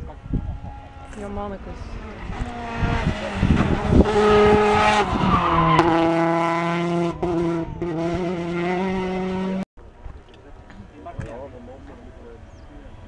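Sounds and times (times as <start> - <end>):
rally car engines passing: 0.0 - 9.6.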